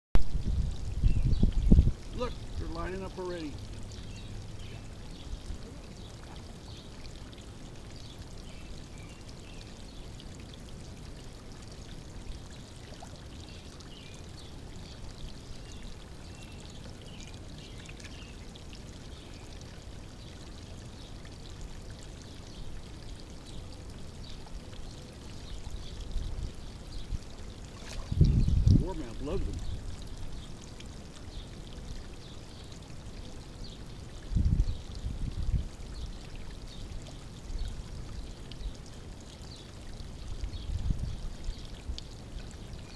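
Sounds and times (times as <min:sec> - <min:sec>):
pond water trickling: 0:00.2 - 0:42.9.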